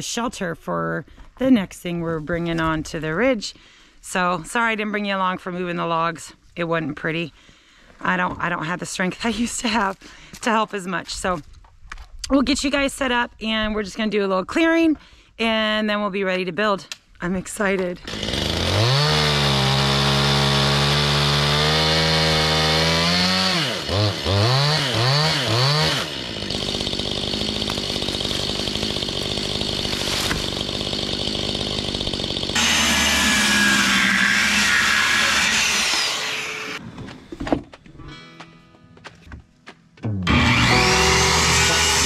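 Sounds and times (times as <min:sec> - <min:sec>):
chainsaw revving: 0:18.0 - 0:36.8, 0:40.2 - 0:42.0.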